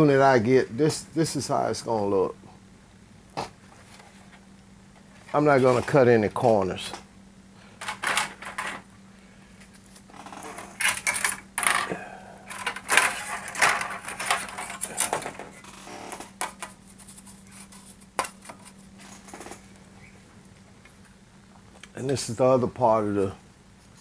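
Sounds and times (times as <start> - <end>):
faint steady hum: 0.0 - 24.0
plastic parts clicking and clattering: 7.8 - 8.8, 10.8 - 11.9, 12.5 - 16.8.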